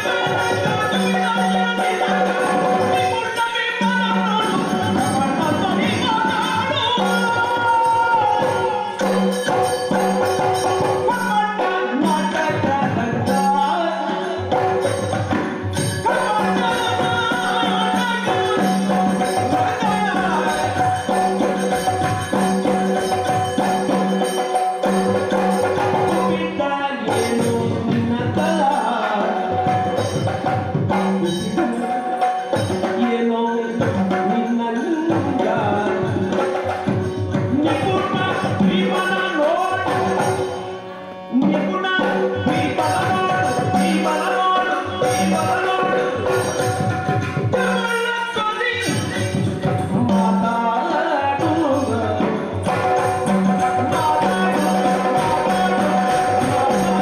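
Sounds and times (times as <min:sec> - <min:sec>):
rapid drum beating: 0:00.0 - 0:40.7, 0:41.3 - 0:57.0
jingling bells: 0:52.6 - 0:57.0.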